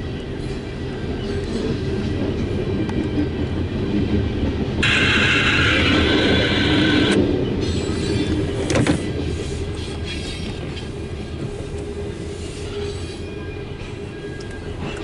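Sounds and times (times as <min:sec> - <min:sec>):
train cars rumbling on rails: 0:00.0 - 0:15.0
train car clunk: 0:04.8 - 0:09.2
high wheel squeal: 0:04.8 - 0:11.0, 0:12.0 - 0:15.0.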